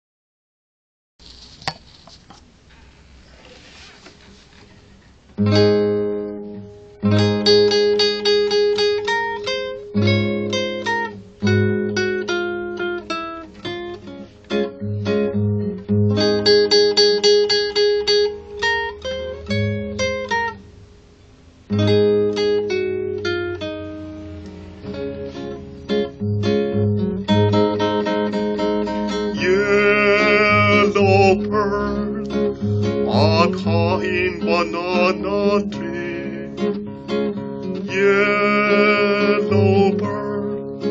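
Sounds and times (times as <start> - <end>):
classical guitar fingerstyle: 4.6 - 40.9
man singing: 29.3 - 36.8, 37.8 - 40.9.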